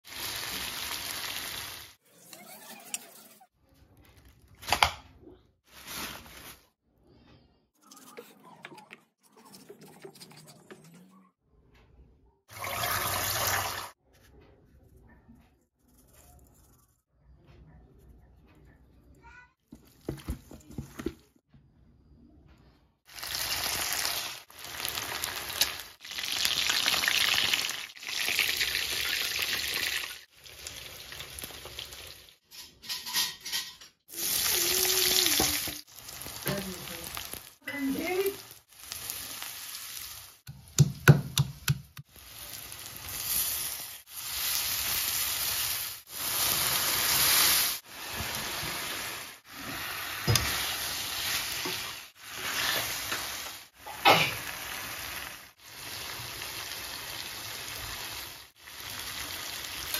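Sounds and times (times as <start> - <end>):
hot oil sizzling in a wok: 0.0 - 2.0, 23.1 - 32.4, 34.1 - 40.5, 42.1 - 59.9.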